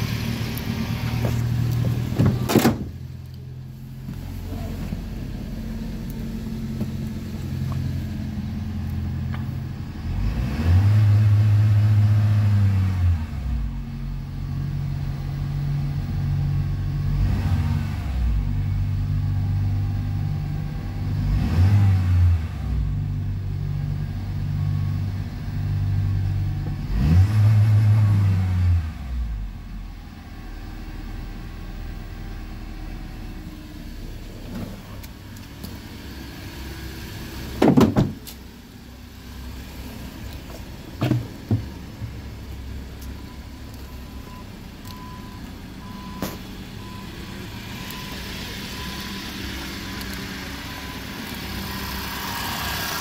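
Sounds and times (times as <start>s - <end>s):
car engine revving and idling: 0.0s - 53.0s
loud knocks: 37.6s - 38.2s.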